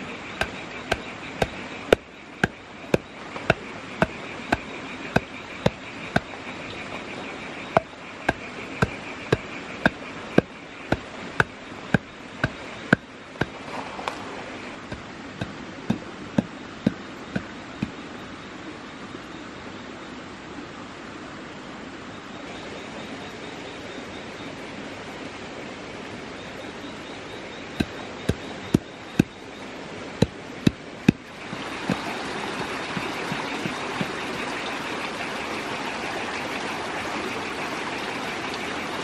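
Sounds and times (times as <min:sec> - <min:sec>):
insect drone: 0:00.0 - 0:39.0
wooden pole pounding clay: 0:00.4 - 0:06.4, 0:07.7 - 0:13.8, 0:14.8 - 0:18.0, 0:27.8 - 0:29.4, 0:30.2 - 0:34.2.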